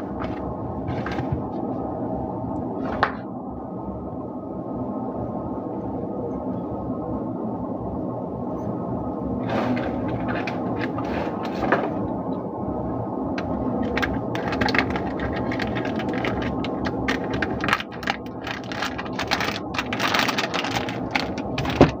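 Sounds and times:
steady low hum: 0:00.0 - 0:22.0
plastic wrapper crinkling: 0:13.4 - 0:22.0.

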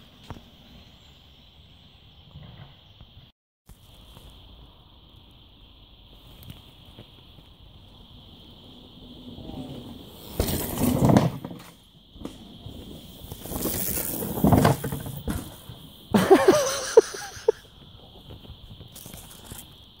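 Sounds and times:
bike tyres rushing over dirt: 0:06.1 - 0:16.5, 0:17.6 - 0:20.0.

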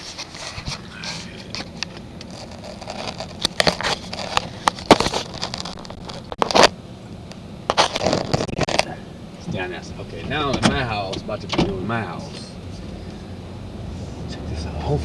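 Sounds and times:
hand rubbing and knocking camera: 0:00.0 - 0:06.7
truck idling: 0:00.0 - 0:15.0.

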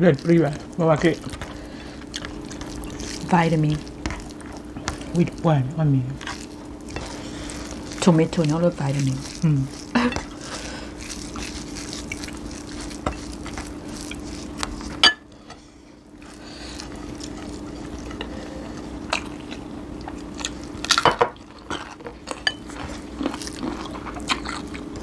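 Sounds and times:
steady low hum: 0:00.0 - 0:25.0
plates and spoon clinking: 0:14.9 - 0:15.6.

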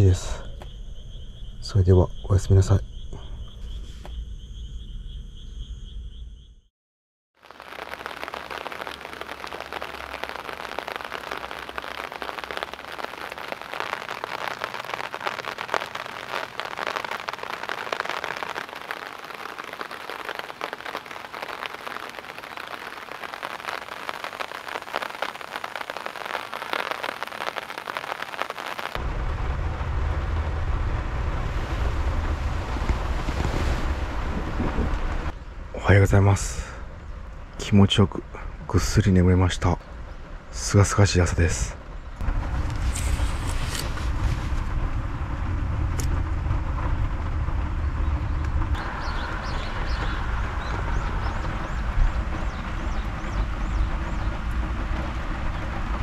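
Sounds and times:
crickets trilling: 0:00.0 - 0:06.7, 0:07.4 - 0:30.6
rain falling on puddle and gravel: 0:07.4 - 0:36.8, 0:40.5 - 0:56.0
wind rumbling on microphone: 0:27.2 - 0:36.0, 0:41.6 - 0:56.0.

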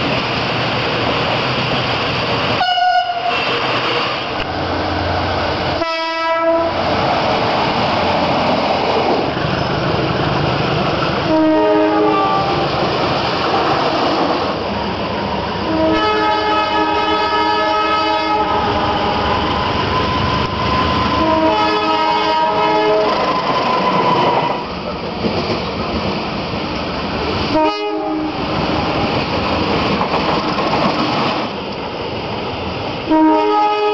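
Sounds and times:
trains rumbling on track: 0:00.0 - 0:33.9
train air horn blasts: 0:02.6 - 0:03.8, 0:05.8 - 0:06.8, 0:11.3 - 0:12.6, 0:15.6 - 0:19.2, 0:20.8 - 0:24.6, 0:27.5 - 0:28.4, 0:33.1 - 0:33.9.

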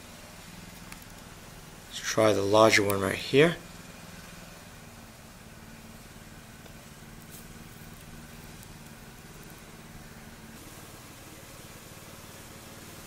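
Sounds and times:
motor humming with hiss: 0:00.0 - 0:13.0.

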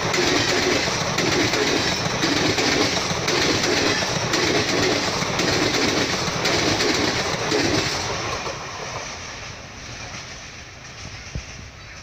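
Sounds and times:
wheels clattering over rail joints: 0:00.0 - 0:09.2
train rushing past: 0:00.0 - 0:12.0.

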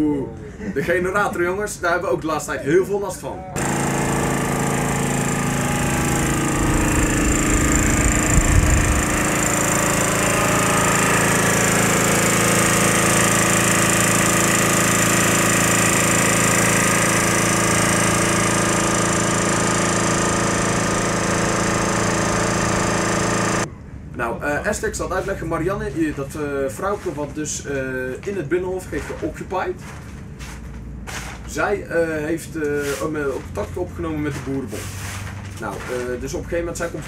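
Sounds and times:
generator engine droning: 0:03.6 - 0:23.7
low engine rumble: 0:04.4 - 0:14.0.

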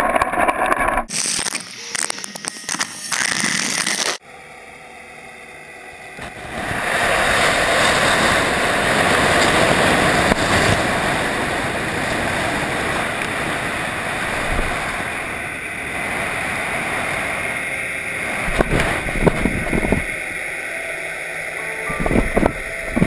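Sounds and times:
water rushing over camera housing: 0:06.2 - 0:20.5.

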